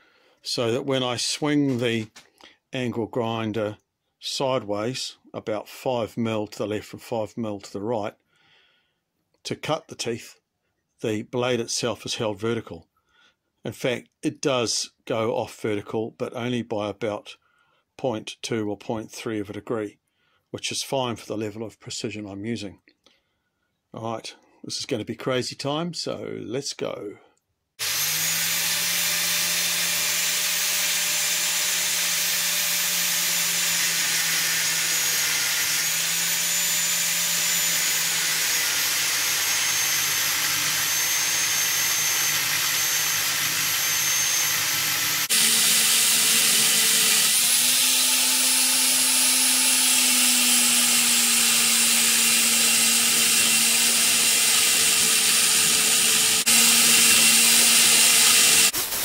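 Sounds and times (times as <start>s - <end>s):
angle grinder cutting metal: 27.8s - 59.0s.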